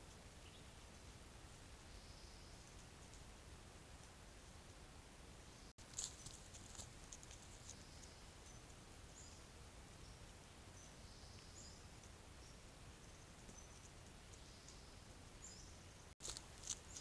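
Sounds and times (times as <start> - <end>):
deer rustling through leaves: 5.8 - 7.8, 16.2 - 17.0.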